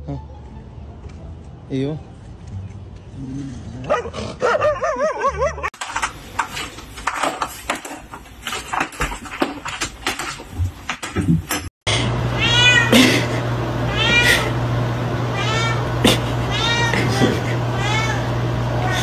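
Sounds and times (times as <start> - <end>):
dog whining: 15.4 - 19.0.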